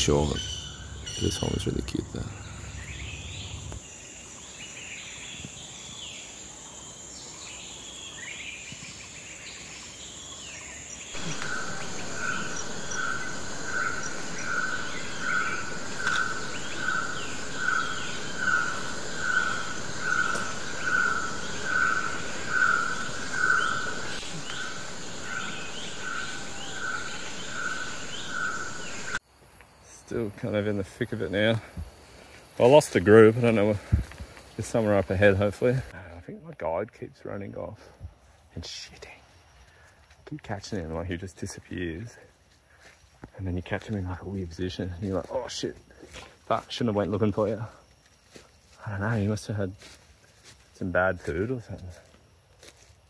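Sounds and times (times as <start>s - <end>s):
bird chirps: 0.0s - 29.2s
pulsing insect call: 0.0s - 36.0s
insect chorus whine: 0.0s - 53.0s.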